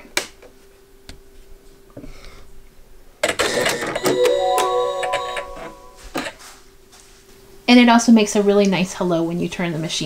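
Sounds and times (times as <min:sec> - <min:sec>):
rising start-up chime: 0:04.1 - 0:06.2.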